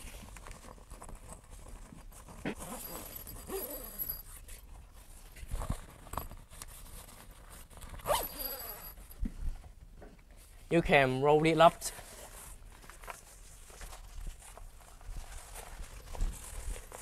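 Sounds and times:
zipper being pulled open: 2.2 - 4.5, 5.6 - 9.1
tent fabric rustling: 11.8 - 17.0.

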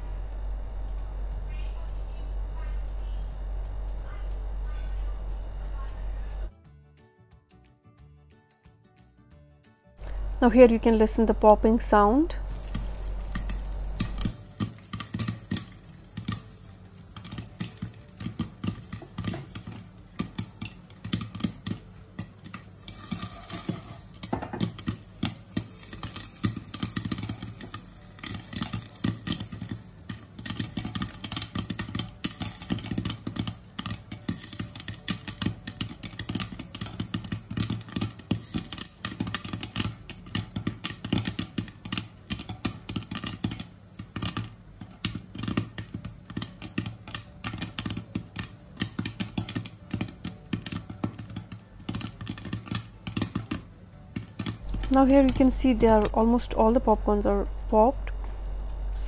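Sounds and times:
corn kernels popping in oil: 12.5 - 56.6.

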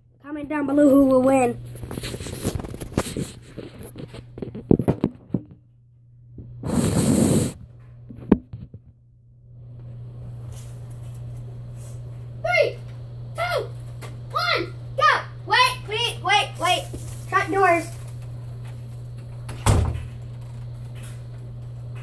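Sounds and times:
low electrical hum: 0.0 - 22.0
footsteps: 16.4 - 19.5.

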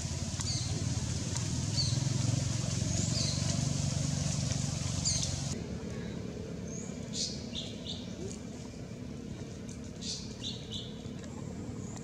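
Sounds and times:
vehicle engine hum: 0.0 - 12.0
bird chirps: 0.4 - 0.8, 1.7 - 2.1, 2.8 - 3.6, 5.0 - 8.2, 10.0 - 11.1.

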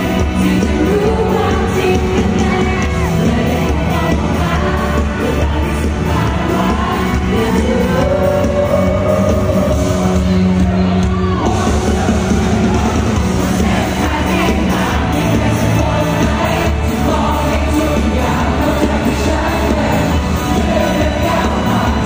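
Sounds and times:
man singing: 0.0 - 10.2, 13.6 - 22.0
crowd noise: 0.0 - 22.0
live pop band playing: 0.0 - 22.0.

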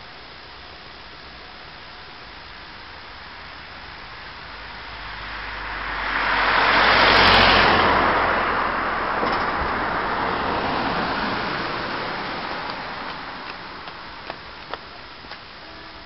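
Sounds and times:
car passing close by: 4.4 - 14.1.

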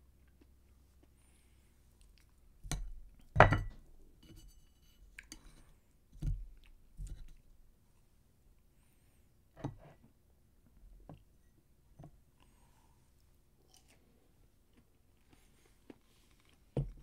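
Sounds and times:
chopsticks and tableware knocking: 2.7 - 3.8
person chewing: 13.6 - 17.0.

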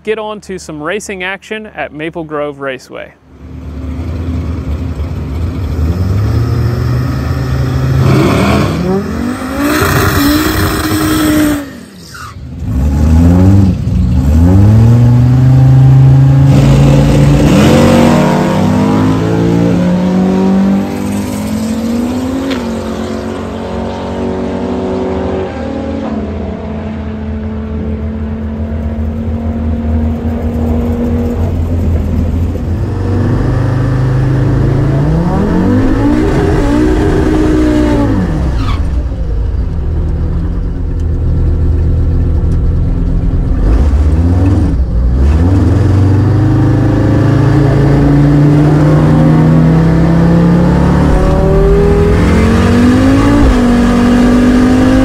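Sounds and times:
drag car engine revving: 3.4 - 55.0
car accelerating through gears: 5.6 - 31.6, 32.7 - 39.2, 43.5 - 55.0.

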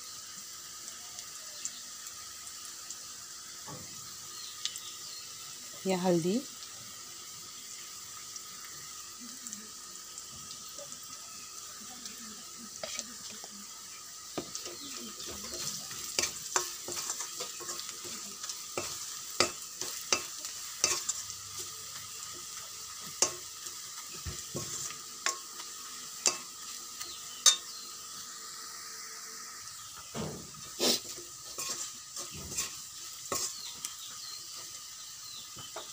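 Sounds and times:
vegetables sizzling in hot oil: 0.0 - 35.9
metal spoon scraping a wok: 12.7 - 13.5, 14.2 - 26.8, 27.4 - 27.8, 30.6 - 33.8.

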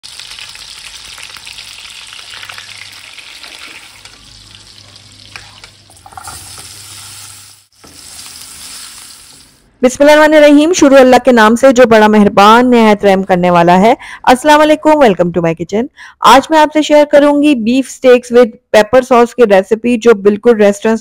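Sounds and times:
oil sizzling in frying pan: 0.0 - 9.7.

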